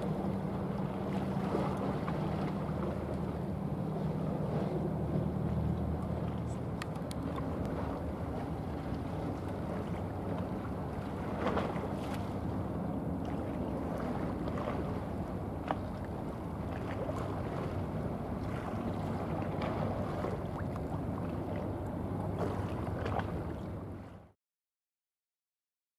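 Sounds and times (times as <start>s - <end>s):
low drone of ship engines: 0.0s - 24.4s
light ticks: 6.8s - 7.8s.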